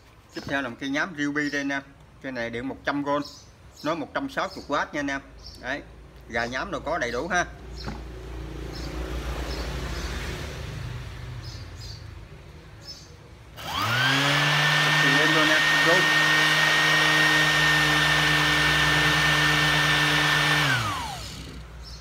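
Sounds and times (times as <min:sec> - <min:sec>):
electric sander whining: 0:13.6 - 0:21.8.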